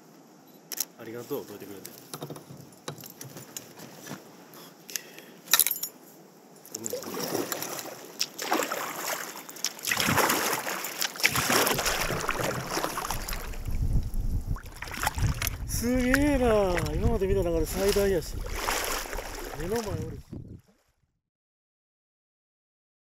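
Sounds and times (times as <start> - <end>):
light clicks and knocks: 1.8 - 3.8
kayak paddle strokes in water: 6.8 - 20.2.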